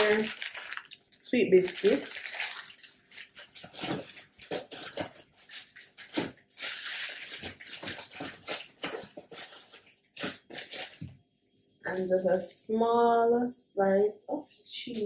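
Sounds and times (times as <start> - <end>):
plastic wrappers rustling: 0.0 - 11.2.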